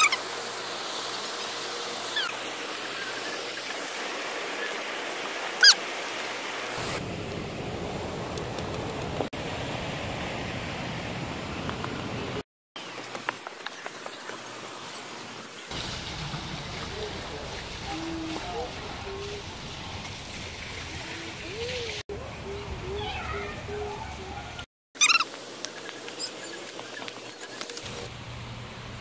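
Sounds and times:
short falling calls: 25.0 - 25.4.

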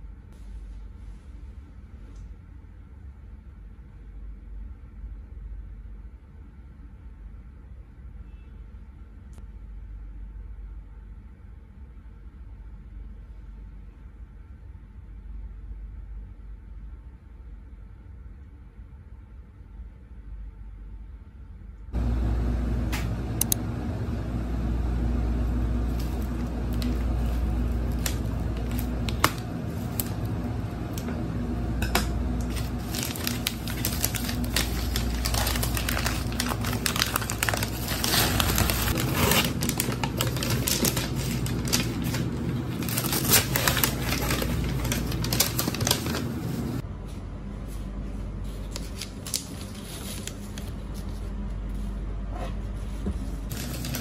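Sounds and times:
steady low hum: 8.8 - 54.0
paper crinkling: 25.7 - 31.1, 32.4 - 46.8, 48.5 - 51.2, 53.5 - 54.0.

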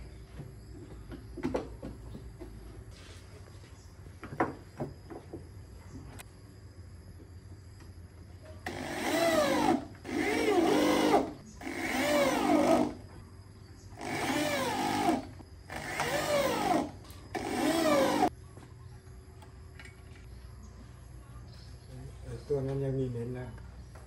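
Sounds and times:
electric drill whining: 8.6 - 13.0, 14.0 - 18.3.

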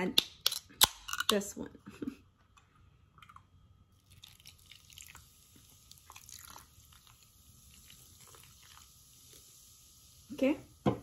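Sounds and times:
liquid trickling into a dish: 3.2 - 10.2.

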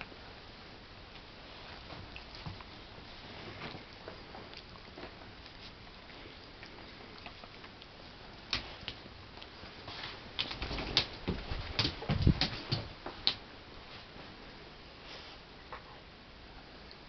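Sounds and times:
paws thumping on wooden floor: 10.4 - 13.3
dog claws clicking on wooden floor: 10.4 - 13.4.

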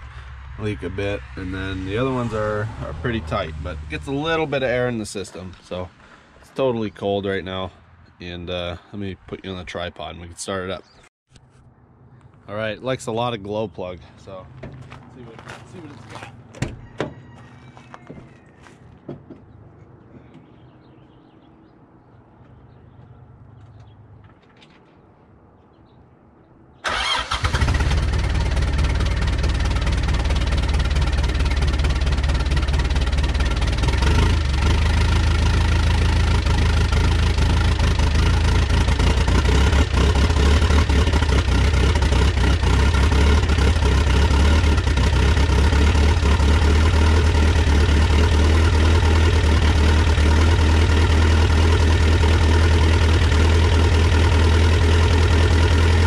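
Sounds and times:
diesel engine idling rough: 27.6 - 56.0.

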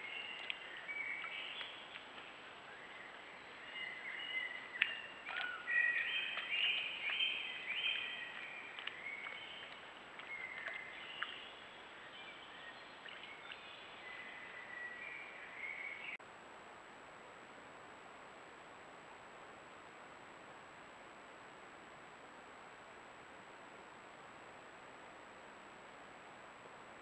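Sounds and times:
songbirds singing: 0.0 - 16.2
background hiss: 0.0 - 27.0.

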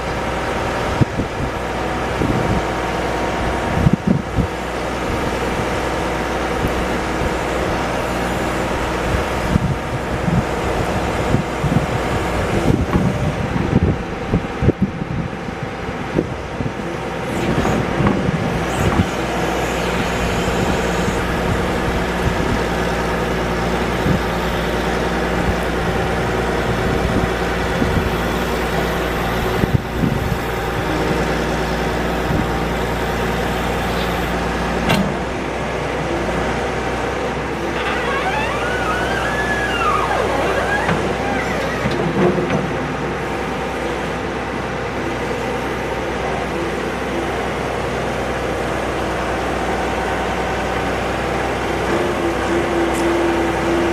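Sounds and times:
diesel engine running under load: 0.0 - 53.9
hydraulic squeaks: 17.2 - 26.8, 27.8 - 34.4, 37.5 - 43.4.

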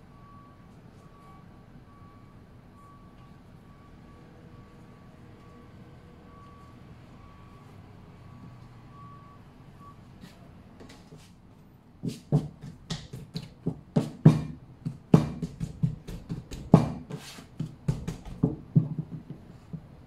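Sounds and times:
dough thumps and slaps: 12.0 - 19.9.

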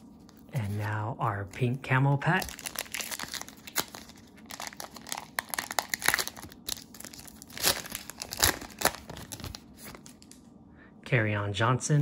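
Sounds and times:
plastic wrapper crinkling: 2.1 - 10.5.

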